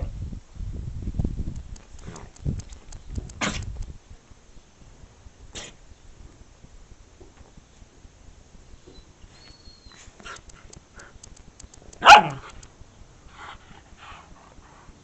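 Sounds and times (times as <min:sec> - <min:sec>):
dog barking: 0:12.0 - 0:12.5.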